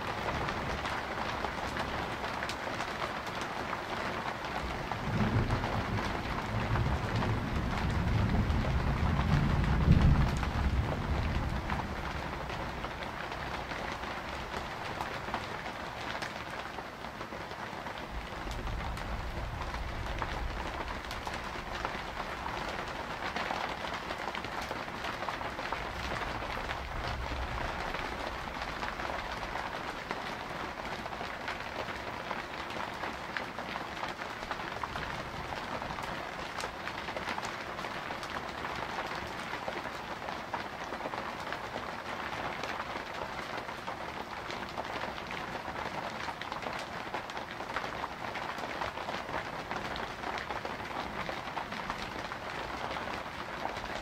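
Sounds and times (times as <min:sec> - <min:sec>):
steady rain pattering: 0:00.0 - 0:54.0
distant thunder rumble: 0:04.9 - 0:13.0.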